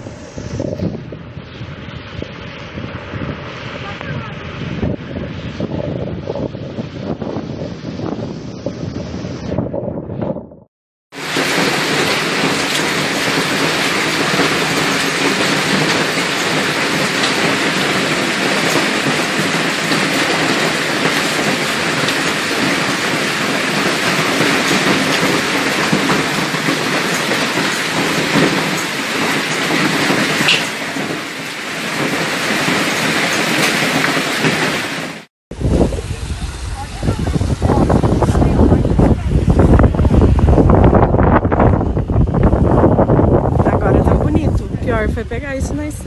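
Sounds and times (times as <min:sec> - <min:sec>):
hail and rain pelting ground: 0:11.1 - 0:35.3.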